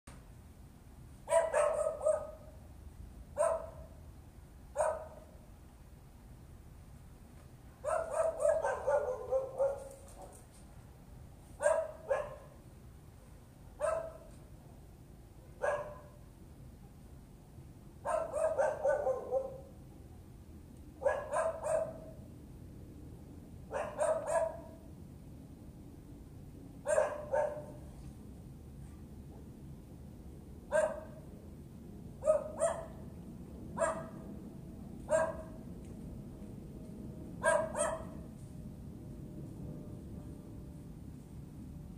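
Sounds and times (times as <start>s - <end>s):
dog barking: 1.3s - 2.5s, 3.4s - 4.0s, 4.8s - 5.3s, 7.8s - 10.4s, 11.6s - 12.6s, 13.8s - 14.3s, 15.4s - 16.2s, 18.0s - 19.7s, 21.0s - 22.2s, 23.7s - 24.8s, 26.8s - 27.8s, 30.7s - 31.2s, 32.2s - 33.0s, 33.8s - 34.2s, 35.1s - 35.6s, 37.4s - 38.2s.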